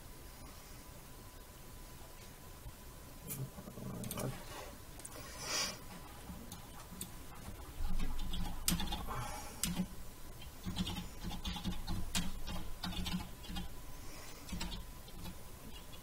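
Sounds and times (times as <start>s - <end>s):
typing on keyboard: 8.0s - 9.9s, 10.6s - 13.7s, 14.5s - 15.4s.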